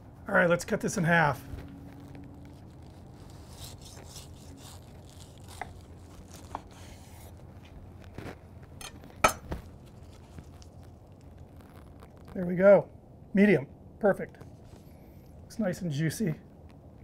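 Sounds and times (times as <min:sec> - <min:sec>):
knife scraping and crunching food: 0:02.1 - 0:12.3.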